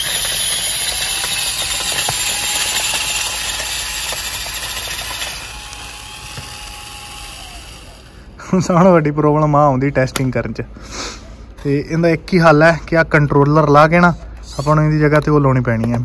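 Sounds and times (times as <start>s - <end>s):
small electric motor whine: 0.0s - 8.4s.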